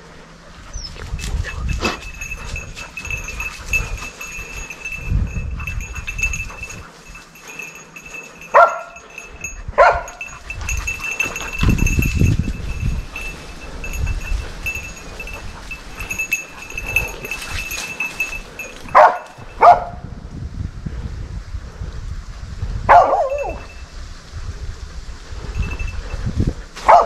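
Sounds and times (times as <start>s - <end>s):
dog barking: 8.5s - 9.1s, 9.8s - 10.3s, 18.8s - 20.0s, 22.9s - 23.6s.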